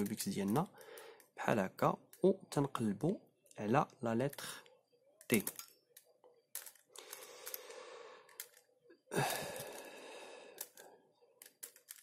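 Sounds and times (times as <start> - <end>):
rubik's cube clicking: 5.2 - 8.7, 9.3 - 12.0.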